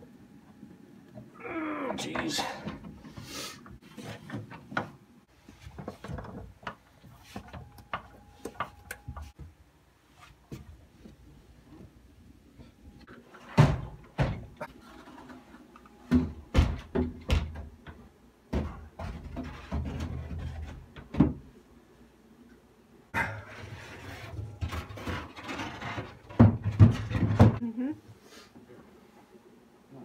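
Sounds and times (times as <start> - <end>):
scraping and shuffling: 23.4 - 28.9.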